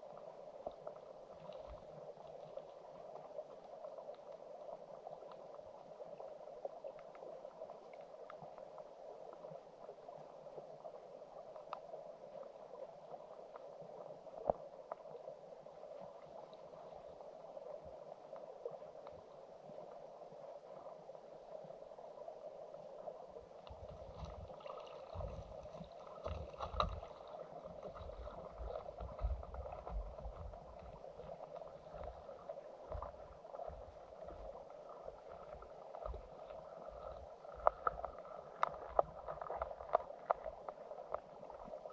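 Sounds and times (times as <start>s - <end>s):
underwater stream murmur: 0.0s - 41.9s
faint clicks: 11.6s - 12.0s, 35.4s - 41.8s.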